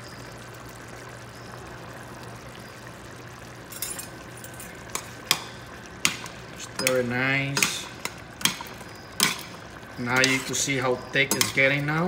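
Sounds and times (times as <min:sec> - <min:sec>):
stew bubbling in a pot: 0:00.0 - 0:12.0
metal spoon scraping a pot: 0:06.7 - 0:12.0.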